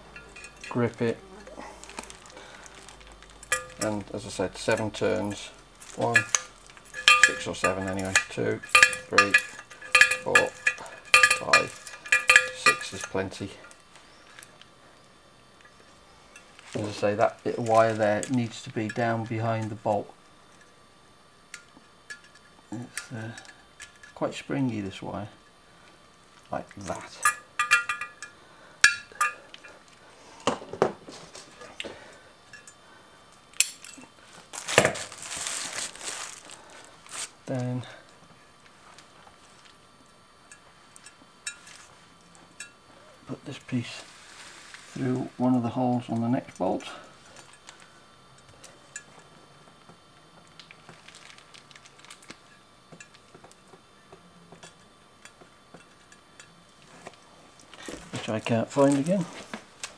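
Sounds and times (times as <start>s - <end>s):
lock wire clinking on metal: 1.8s - 13.8s, 26.8s - 29.7s
rustle: 34.3s - 37.4s, 43.8s - 45.5s.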